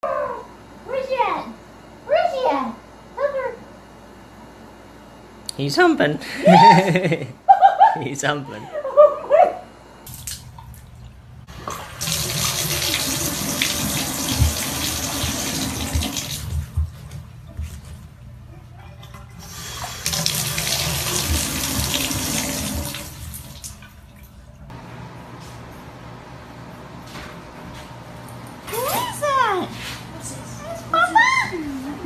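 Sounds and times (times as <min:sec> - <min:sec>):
water pouring into bathtub: 0:10.1 - 0:16.6, 0:19.4 - 0:24.3.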